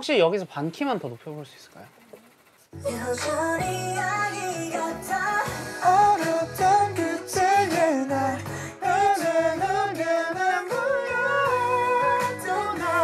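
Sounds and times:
sung melody over backing track: 0:02.8 - 0:13.0.

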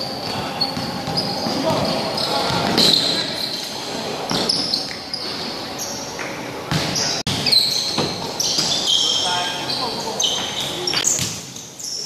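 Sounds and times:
players' voices echoing: 0:00.0 - 0:11.2
sneakers squeaking on wooden court: 0:00.0 - 0:12.0
basketball bouncing: 0:06.7 - 0:08.7.

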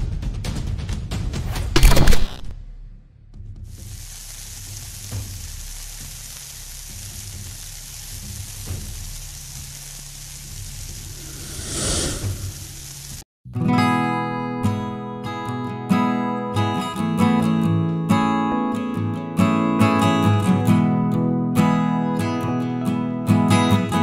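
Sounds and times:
fish frying in oil: 0:03.7 - 0:13.2.

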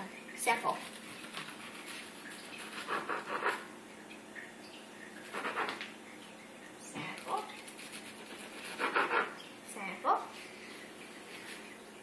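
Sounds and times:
knife scraping toast: 0:07.5 - 0:09.3.

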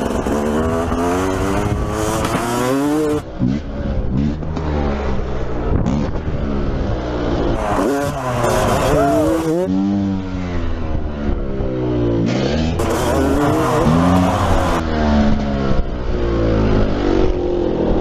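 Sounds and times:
engine revving: 0:00.0 - 0:04.9, 0:07.4 - 0:10.2, 0:12.1 - 0:18.0.

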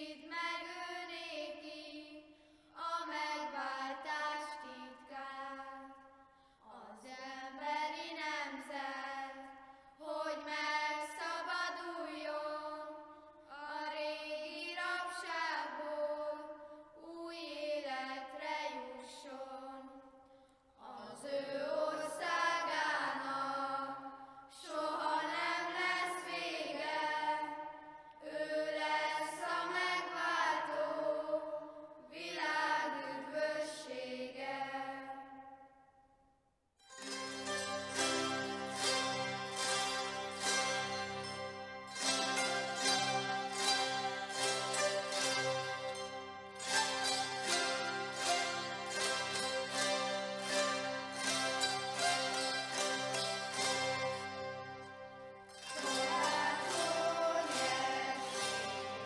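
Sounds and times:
lower boys' voices singing: 0:20.8 - 0:35.1, 0:41.9 - 0:54.5, 0:55.6 - 0:59.0
children singing unaccompanied: 0:20.9 - 0:24.0, 0:24.6 - 0:35.1, 0:55.6 - 0:59.0.

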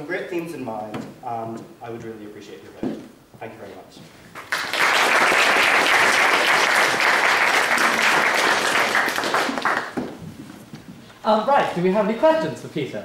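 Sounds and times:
audience applauding: 0:04.3 - 0:10.2.

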